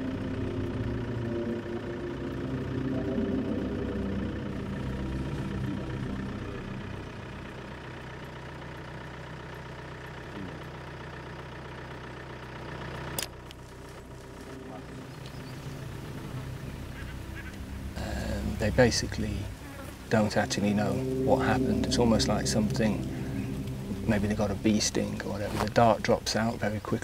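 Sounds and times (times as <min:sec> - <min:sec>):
vehicle engine idling: 0:00.0 - 0:27.0.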